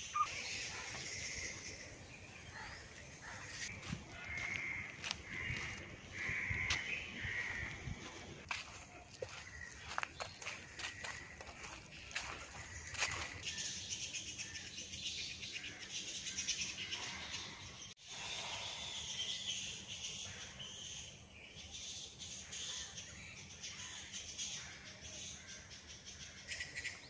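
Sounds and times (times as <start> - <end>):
birds chirping and squeaking: 0.0 - 14.6.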